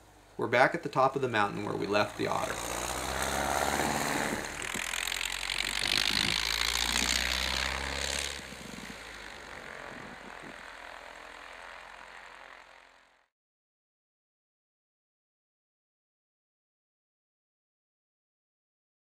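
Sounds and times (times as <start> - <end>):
plane engine and propeller: 1.5 - 13.2.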